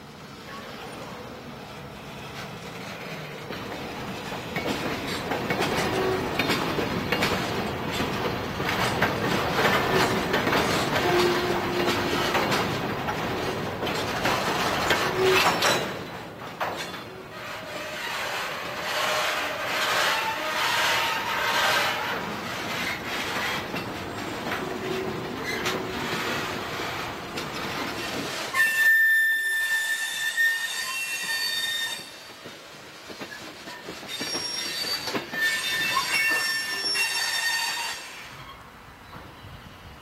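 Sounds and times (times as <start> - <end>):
train wheels rumbling on rails: 0.0 - 40.0
high-pitched wheel squeal: 28.5 - 32.2, 34.1 - 38.6.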